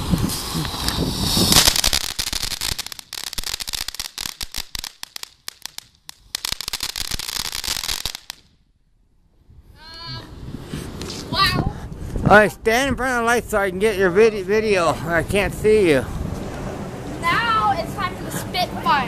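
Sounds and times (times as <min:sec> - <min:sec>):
firework spraying sparks with hiss: 0:00.0 - 0:08.5
firework crackling pops: 0:00.0 - 0:08.6.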